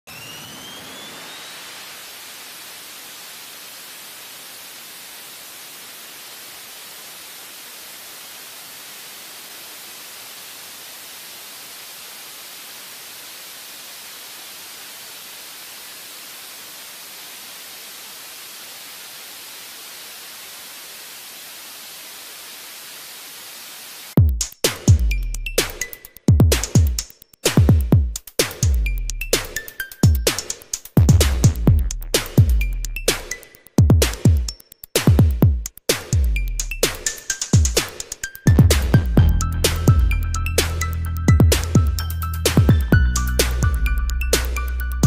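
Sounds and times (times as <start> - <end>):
jet engine exhaust hiss: 0.1 - 24.2.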